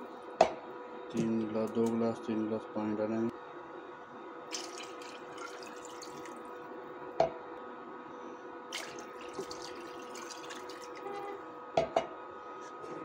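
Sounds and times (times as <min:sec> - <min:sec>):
water pouring into liquid: 0:04.5 - 0:06.5, 0:08.7 - 0:11.2.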